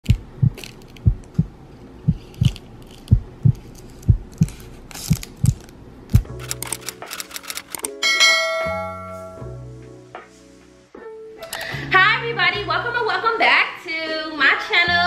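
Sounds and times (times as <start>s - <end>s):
heartbeat thumps: 0.0s - 6.4s.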